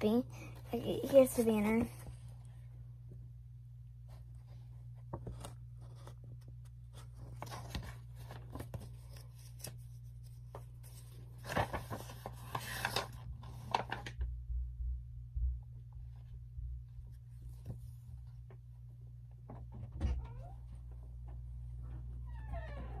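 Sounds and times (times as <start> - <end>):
low steady hum: 0.0 - 23.0
rustling and clicking handling noise: 4.1 - 14.3.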